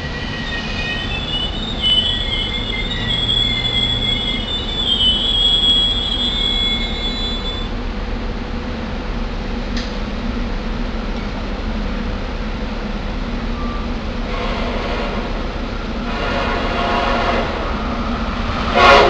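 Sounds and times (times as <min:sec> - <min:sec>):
train wheel squeal: 0:00.0 - 0:07.8, 0:13.2 - 0:19.0
train low rumble: 0:00.0 - 0:19.0.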